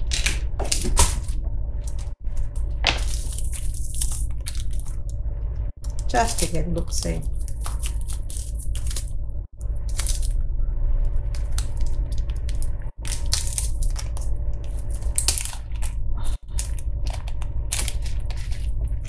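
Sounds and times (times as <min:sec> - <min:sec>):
plastic bag crinkling: 0:05.9 - 0:09.1, 0:11.5 - 0:19.0.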